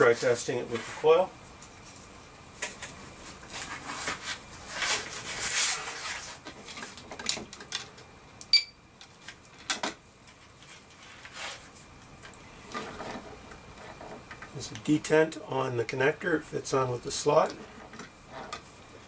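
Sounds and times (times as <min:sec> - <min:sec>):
clicks and rustling of wires: 0:02.6 - 0:15.0
short high ping: 0:08.5 - 0:08.8.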